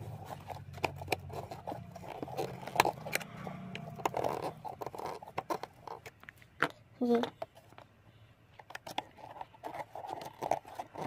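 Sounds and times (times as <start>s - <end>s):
screwdriver clicking and scraping: 0.0s - 6.7s.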